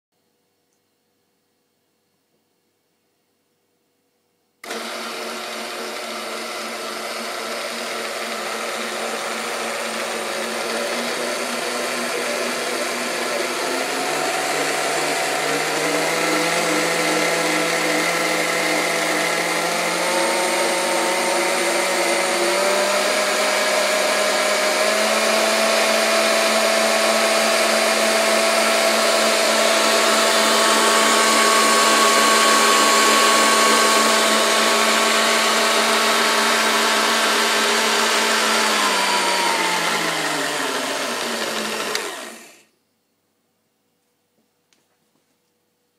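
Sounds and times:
stand mixer motor whining: 4.6s - 42.7s.

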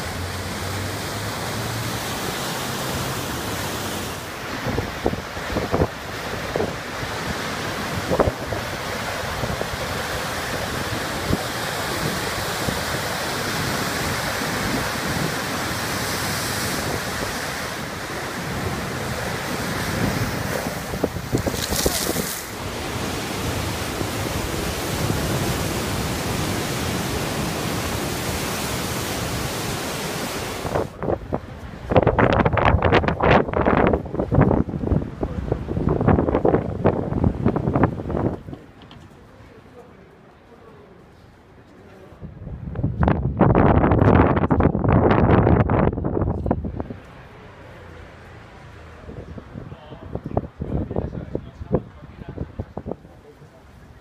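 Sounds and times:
surf breaking against a sea wall: 0.0s - 39.8s
wind on the microphone: 3.4s - 38.8s, 42.1s - 47.0s, 49.0s - 54.0s.

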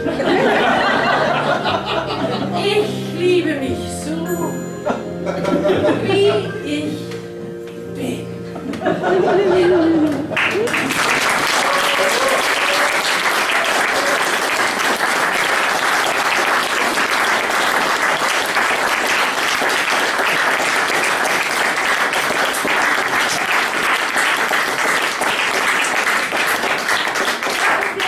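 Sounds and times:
audience applauding: 10.0s - 28.0s.

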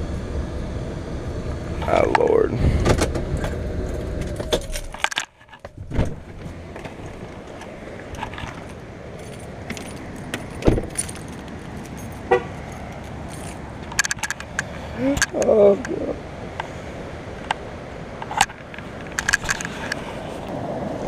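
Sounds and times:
truck cab rumble: 0.0s - 20.7s
keys jangling: 4.6s - 5.4s, 7.0s - 15.4s, 18.4s - 20.0s
car door slamming: 5.7s - 7.0s, 9.6s - 11.3s
car door clicking open: 9.6s - 11.6s
wind and water rushing: 15.6s - 21.0s.

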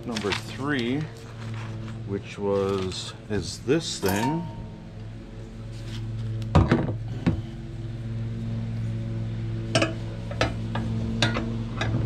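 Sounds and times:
steady low hum: 0.0s - 12.0s
steel parts knocking and clanking: 3.9s - 4.7s.

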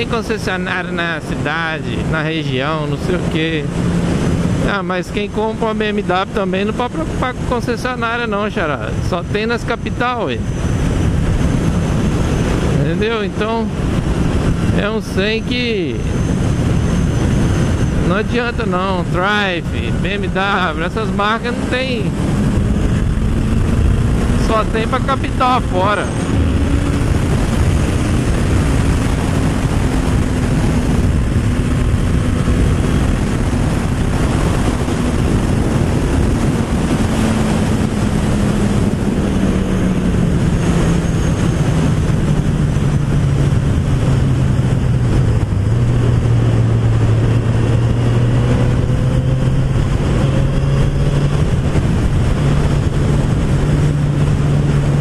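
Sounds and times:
motorcycle engine running: 0.0s - 55.0s
wind rushing on microphone: 0.0s - 55.0s.

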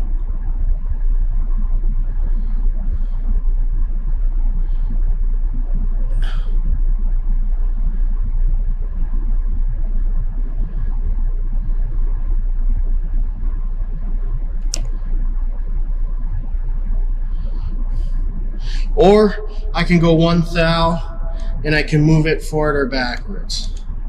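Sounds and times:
low rumble: 0.0s - 24.0s
sharp click: 14.6s - 15.0s.

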